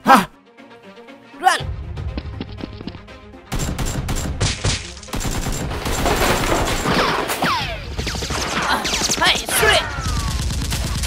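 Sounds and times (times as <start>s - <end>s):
rapid automatic gunfire: 5.1s - 7.1s, 7.9s - 11.0s.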